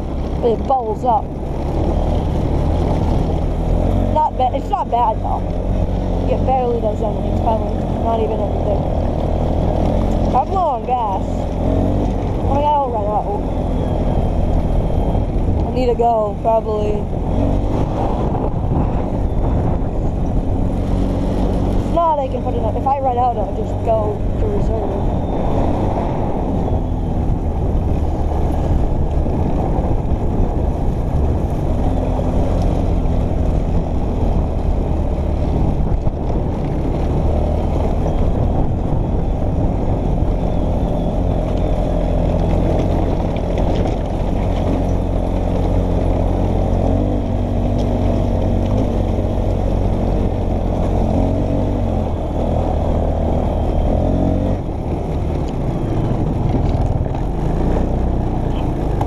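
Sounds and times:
quad engine running: 0.0s - 59.0s.

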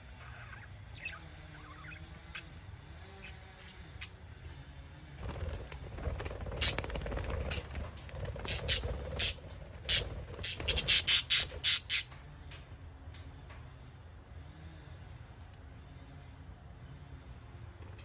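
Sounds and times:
budgerigars squawking: 6.6s - 7.7s, 8.4s - 12.2s.

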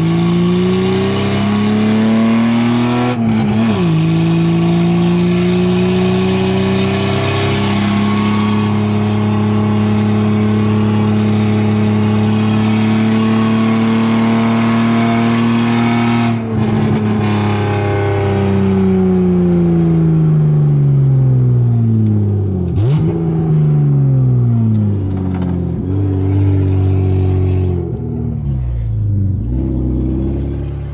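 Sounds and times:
loud car engine revving: 0.0s - 30.9s.

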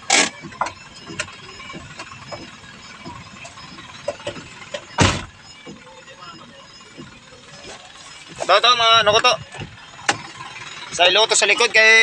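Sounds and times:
sharp clicks and knocks: 0.0s - 7.3s, 9.4s - 10.4s
loud bumps: 0.2s - 11.0s.

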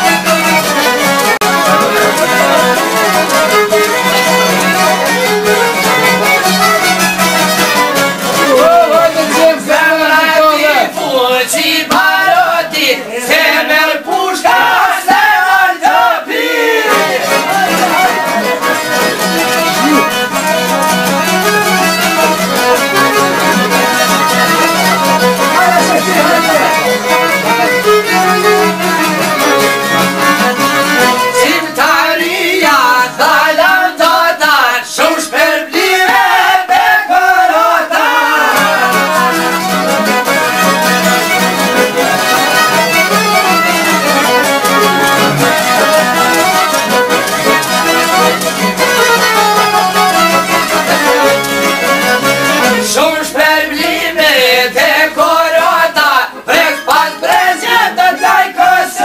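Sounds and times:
plucked lutes with drone: 0.0s - 9.5s, 16.8s - 32.0s, 38.2s - 54.2s
men singing: 1.3s - 6.4s, 8.2s - 19.1s, 28.9s - 43.0s, 50.4s - 59.0s.

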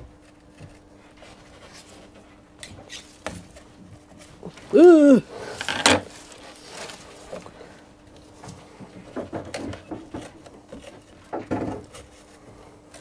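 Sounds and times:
rustling handling: 0.2s - 4.7s, 5.4s - 13.0s.

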